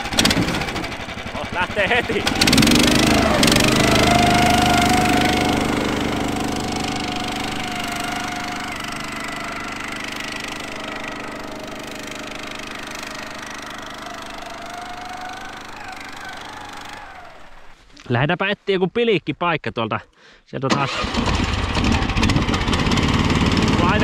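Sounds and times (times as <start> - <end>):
engine running: 0.0 - 17.8, 20.9 - 24.0
wavering whine: 2.5 - 17.8.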